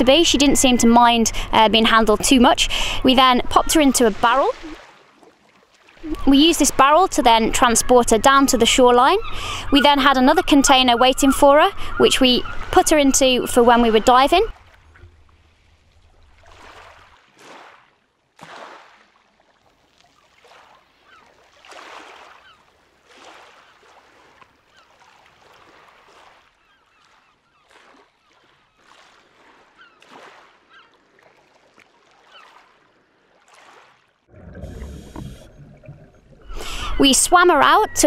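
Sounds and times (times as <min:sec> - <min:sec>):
faint bird calls: 0:07.8 - 0:14.1, 0:21.0 - 0:21.4, 0:29.6 - 0:31.0, 0:32.2 - 0:32.7
scuba regulator and bubbles: 0:34.3 - 0:38.0.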